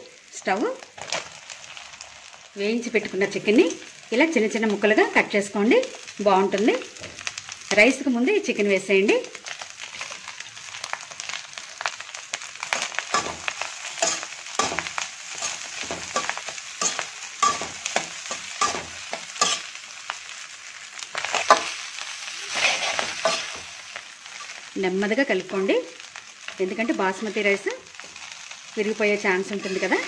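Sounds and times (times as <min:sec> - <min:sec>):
fried rice sizzling in a wok: 0:00.0 - 0:30.0
metal spoon scraping a wok: 0:12.7 - 0:19.8, 0:21.2 - 0:21.8, 0:22.4 - 0:23.7, 0:29.4 - 0:30.0.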